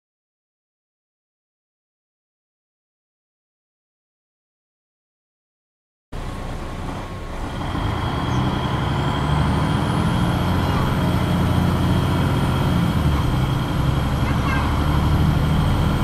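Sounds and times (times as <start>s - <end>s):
bus diesel engine running: 6.2s - 16.0s.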